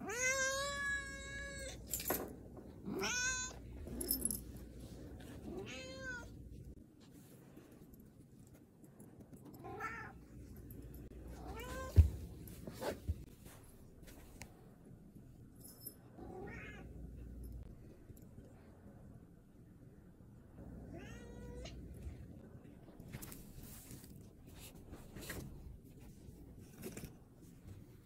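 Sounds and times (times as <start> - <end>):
cat meowing: 2.9 - 3.6, 20.9 - 21.7.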